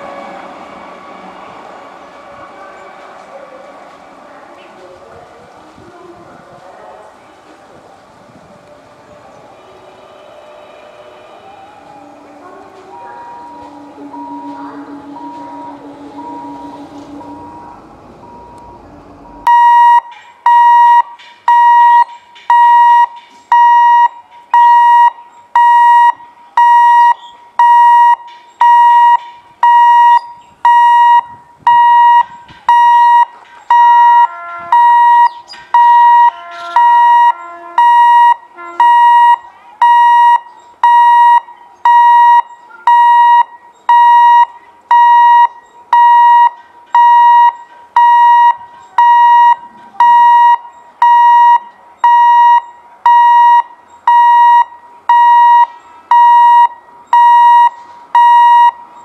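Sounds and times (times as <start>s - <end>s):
faint extra tones: 8.6s - 59.0s
level crossing alarm beeping: 13.0s - 59.0s.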